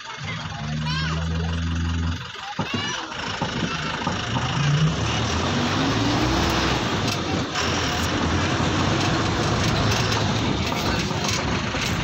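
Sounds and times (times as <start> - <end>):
bus engine rumble: 0.0 - 12.0
road noise hiss: 3.0 - 12.0.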